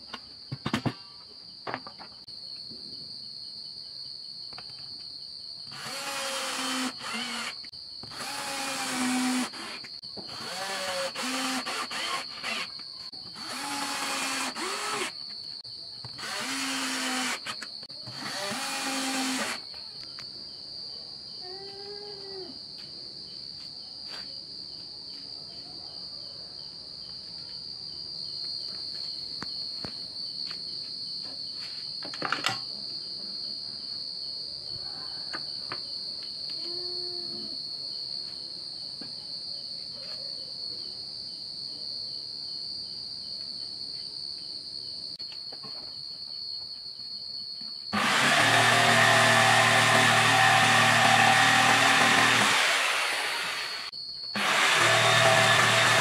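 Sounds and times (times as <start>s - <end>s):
cricket trilling: 0.0s - 56.0s
jigsaw running: 5.7s - 15.2s, 16.0s - 19.6s, 48.0s - 56.0s.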